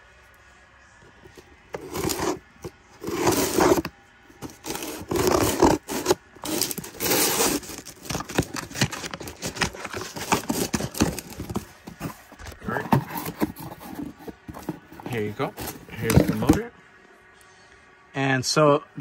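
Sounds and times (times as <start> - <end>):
scissors cutting packaging: 1.8 - 2.4, 3.0 - 16.6
packaging tearing with clicks and rattles: 3.1 - 11.7.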